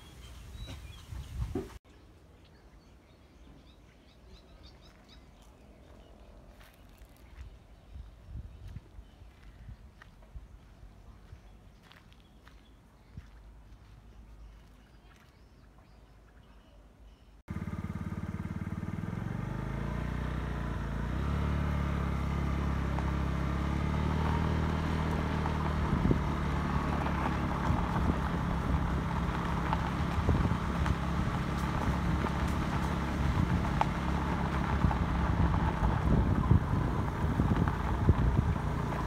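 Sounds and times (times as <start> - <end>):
motorbike engine accelerating: 17.5 - 39.0.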